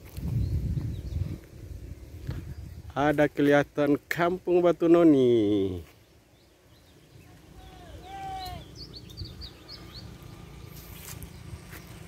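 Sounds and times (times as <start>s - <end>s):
birds chirping: 0.3s - 12.0s
rising and falling bird call: 6.4s - 12.0s.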